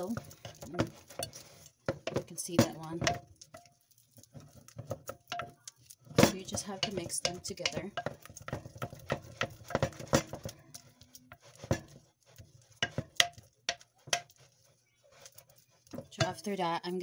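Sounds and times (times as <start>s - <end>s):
wooden spoon knocking on glass jug: 0.0s - 3.7s, 4.3s - 10.8s, 12.7s - 14.5s, 15.9s - 16.6s.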